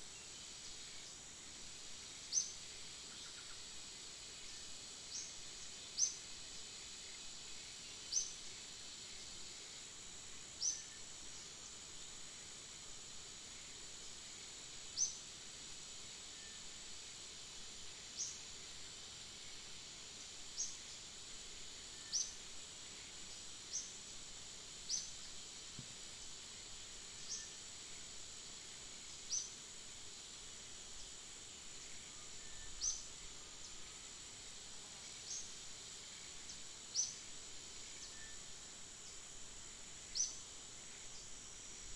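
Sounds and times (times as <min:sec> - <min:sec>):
high-pitched insect drone: 0:15.9 - 0:41.9.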